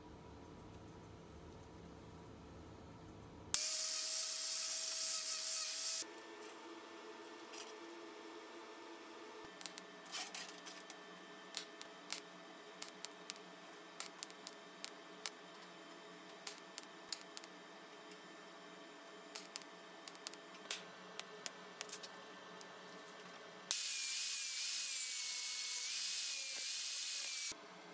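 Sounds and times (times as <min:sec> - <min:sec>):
welding torch clicks and crackles: 0:09.6 - 0:15.6, 0:16.3 - 0:18.2, 0:19.3 - 0:22.7.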